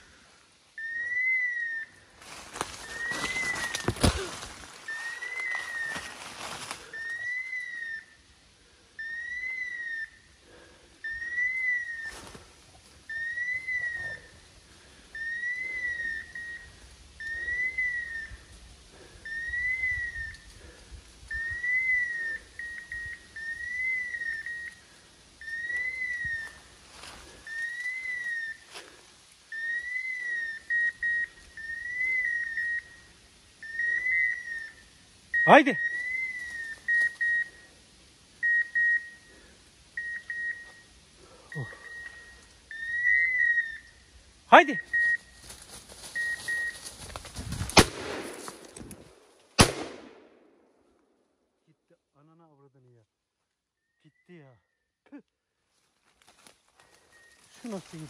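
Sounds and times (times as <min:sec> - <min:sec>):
rustling through brush: 0:02.0 - 0:07.8, 0:11.6 - 0:15.8, 0:20.4 - 0:33.0, 0:35.8 - 0:50.4, 0:55.6 - 0:58.0.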